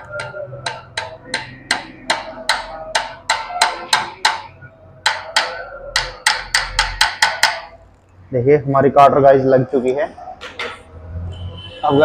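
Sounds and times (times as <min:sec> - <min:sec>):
hammer tapping metal: 0:00.0 - 0:07.8, 0:10.4 - 0:10.9.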